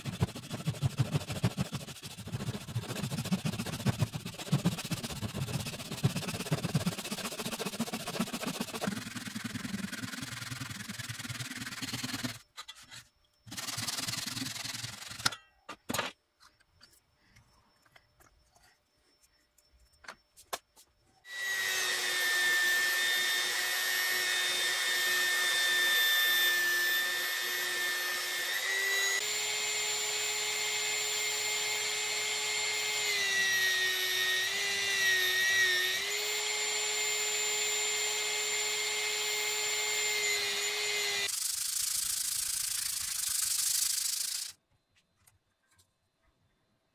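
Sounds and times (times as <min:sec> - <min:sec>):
belt sander whining: 0:00.0 - 0:12.5, 0:21.3 - 0:44.6
hand saw cutting wood: 0:00.0 - 0:12.5, 0:13.5 - 0:15.4, 0:21.3 - 0:41.4.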